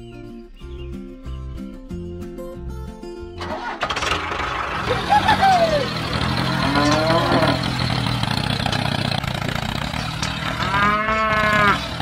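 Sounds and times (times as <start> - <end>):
cattle mooing: 5.5 - 7.8, 10.2 - 12.0.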